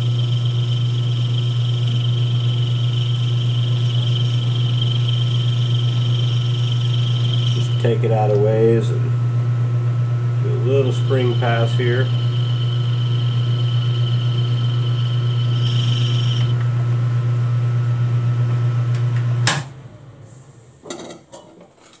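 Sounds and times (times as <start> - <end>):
high whine of cutting: 0.0 - 16.9
lathe motor hum: 0.0 - 17.1.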